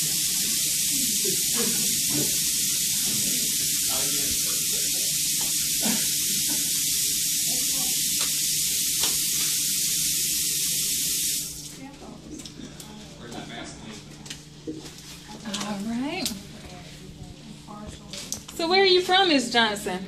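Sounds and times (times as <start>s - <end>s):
tap water running into sink: 0.0s - 11.8s.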